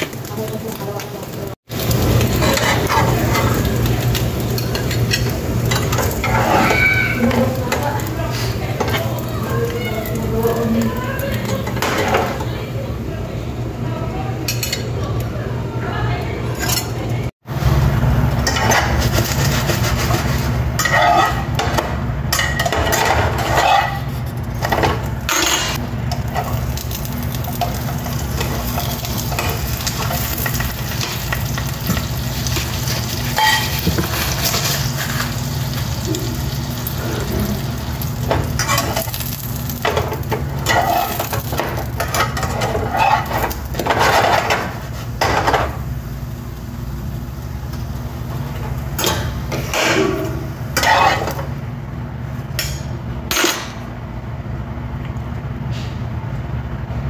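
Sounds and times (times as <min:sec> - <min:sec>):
toast sizzling in a pan: 0:00.0 - 0:12.8, 0:25.7 - 0:51.6.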